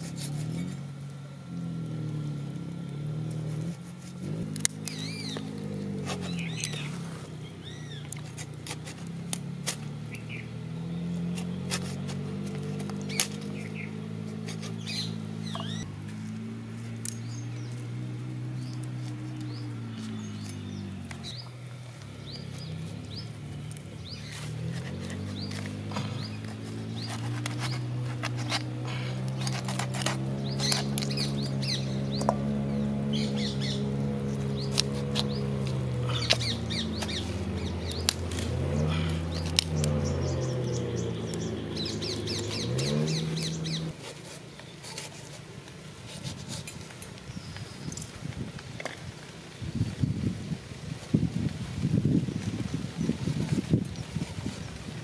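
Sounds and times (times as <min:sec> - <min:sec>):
steady low hum: 0:00.0 - 0:44.0
small birds chirping: 0:00.0 - 0:50.3
high squeaky chirps: 0:13.0 - 0:15.9.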